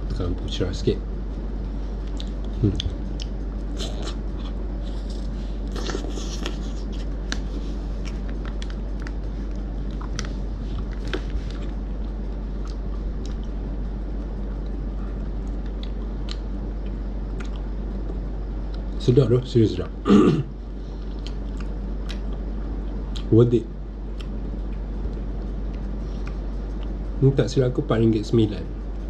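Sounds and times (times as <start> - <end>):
low hum: 0.0 - 29.0
mouth clicks and smacks: 2.0 - 5.0, 15.4 - 18.9, 21.0 - 22.4
biting and chewing: 2.0 - 19.0.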